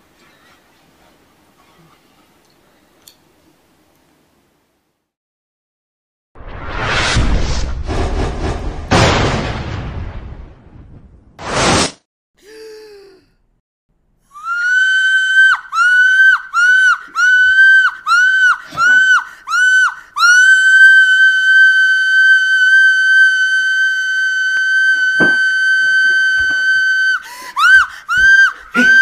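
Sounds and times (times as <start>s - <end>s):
woman screaming: 14.3s - 24.2s, 24.8s - 29.0s.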